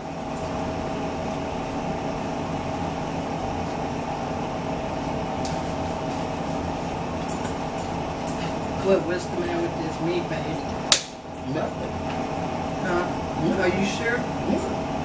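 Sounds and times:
household appliance humming: 0.0s - 15.0s.

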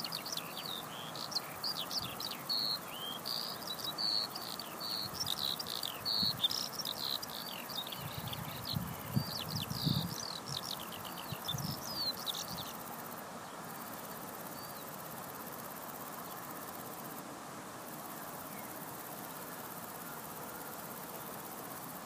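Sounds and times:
skylark singing high chirps: 0.0s - 12.8s
steady background hiss: 0.0s - 22.0s.

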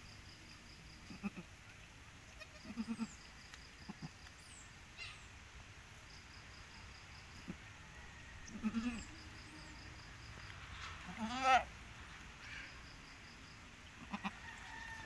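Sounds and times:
goat bleating softly: 1.0s - 1.5s, 2.3s - 3.2s, 3.9s - 4.2s, 8.5s - 9.1s, 11.0s - 11.7s, 14.0s - 14.4s.

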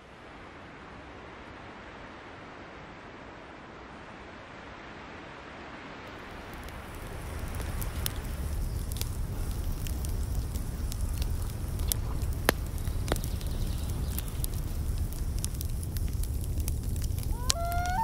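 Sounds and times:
wood fire crackling and popping: 6.0s - 18.0s.

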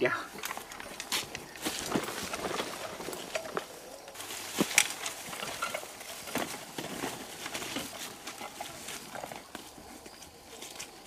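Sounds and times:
grass and brush rustling: 0.0s - 11.0s
footsteps crunching on dirt: 0.4s - 11.0s.

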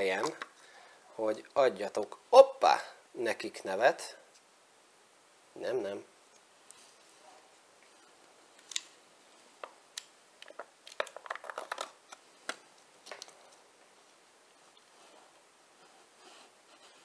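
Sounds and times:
plastic cup lid clicking and crinkling: 10.0s - 13.3s.

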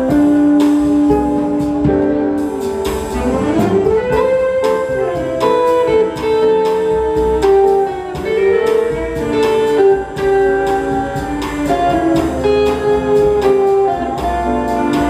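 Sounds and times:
electric guitar chords: 0.0s - 15.0s
upright bass: 0.0s - 15.0s.

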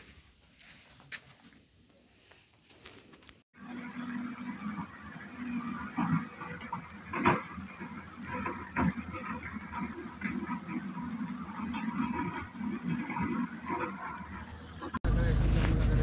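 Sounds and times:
high-pitched insect drone: 3.6s - 15.0s.

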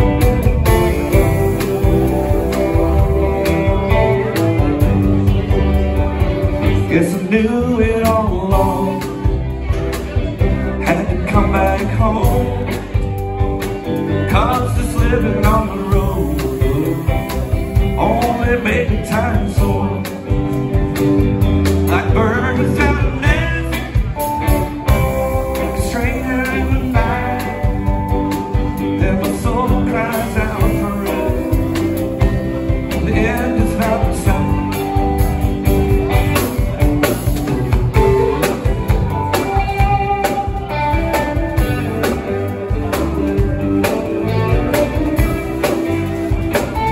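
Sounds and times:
bass guitar: 0.0s - 46.9s
drum kit: 0.0s - 46.9s
electric guitars: 0.0s - 46.9s
man singing lead vocal: 6.5s - 13.1s, 14.0s - 20.9s, 21.8s - 35.5s.

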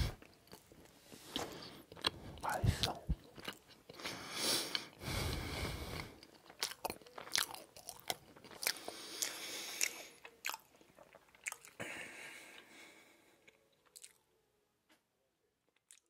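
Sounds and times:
wet chewing mouth sounds: 0.0s - 11.8s, 13.4s - 14.2s
breathy noise: 3.9s - 6.4s, 11.7s - 13.6s
lip smacks and tongue clicks: 6.2s - 11.8s, 13.4s - 14.2s, 15.8s - 16.0s.

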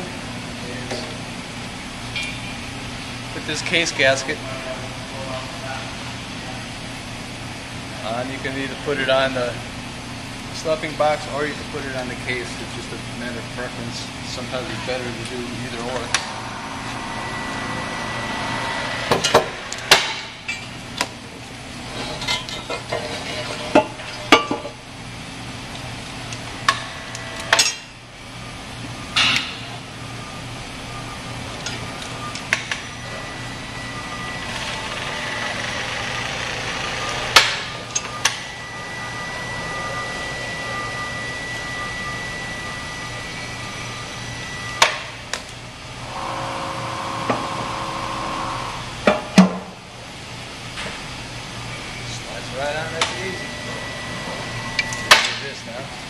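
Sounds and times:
shop hum: 0.0s - 56.0s
thin high whine: 10.6s - 22.6s, 26.6s - 49.0s, 51.6s - 56.0s.

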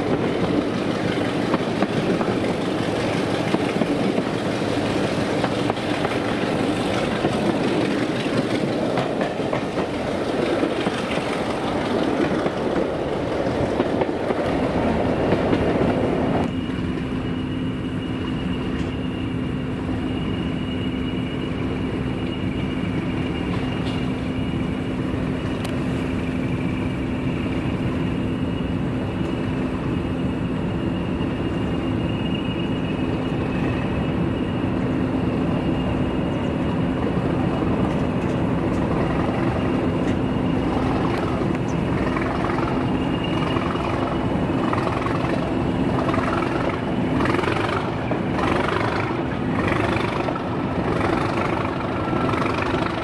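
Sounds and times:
train wheels clattering on rails: 0.0s - 17.1s, 22.1s - 24.6s, 31.5s - 53.0s
diesel engine drone: 14.4s - 53.0s.

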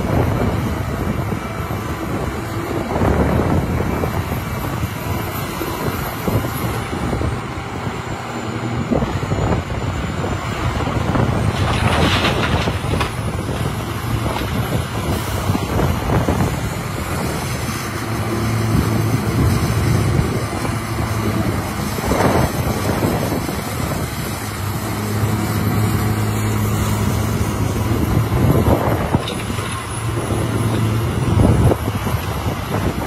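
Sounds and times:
excavator diesel engine droning: 0.0s - 33.0s
rock and bucket rushes: 11.2s - 17.4s.

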